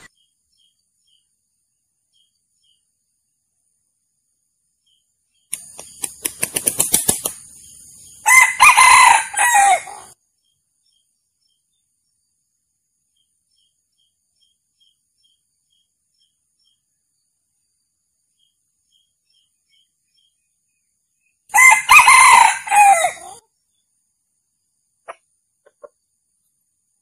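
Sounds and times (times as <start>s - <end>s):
rooster crowing: 8.2s - 10.1s, 21.5s - 23.4s.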